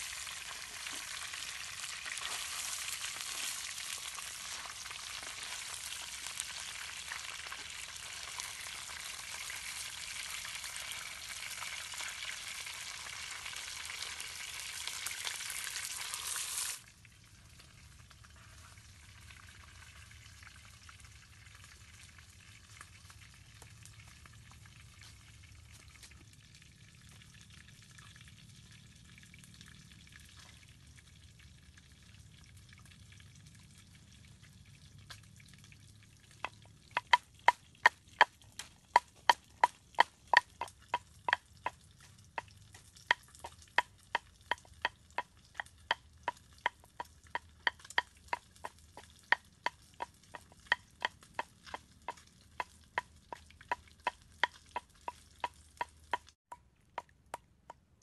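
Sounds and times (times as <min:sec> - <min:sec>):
wooden pestle pounding in mortar: 0:36.5 - 0:41.4, 0:43.1 - 0:57.9.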